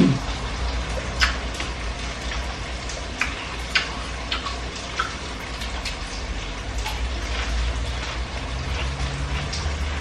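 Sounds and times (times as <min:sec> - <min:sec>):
mouth chewing watermelon: 0:03.1 - 0:10.0.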